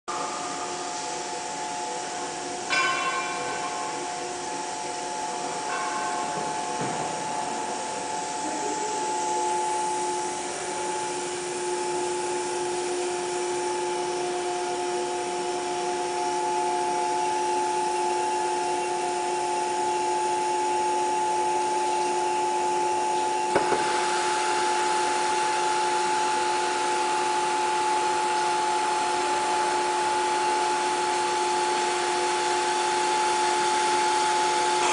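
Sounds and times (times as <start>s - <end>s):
sharp knock: 23.5s - 23.9s.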